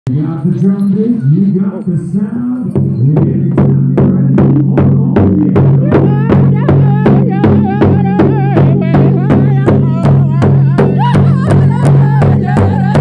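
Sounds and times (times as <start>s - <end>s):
large drum beating in unison: 0.6s - 13.0s
singers' high wavering voices: 5.6s - 13.0s.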